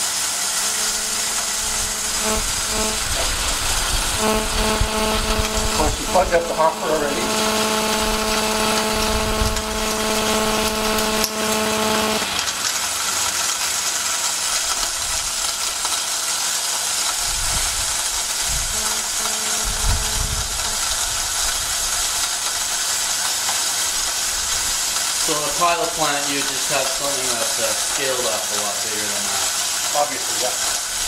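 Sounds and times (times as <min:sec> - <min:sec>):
machine hum: 0:00.0 - 0:12.7, 0:17.1 - 0:23.2
hissing grinding noise: 0:00.0 - 0:12.8, 0:17.1 - 0:31.0.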